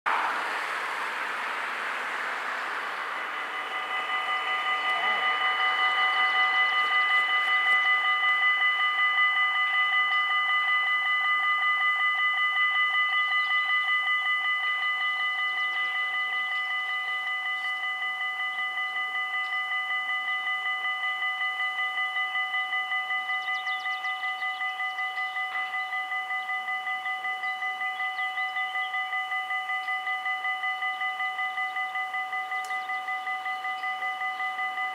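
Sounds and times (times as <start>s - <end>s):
car passing: 0.1s - 9.1s
level crossing warning bells: 0.1s - 34.9s.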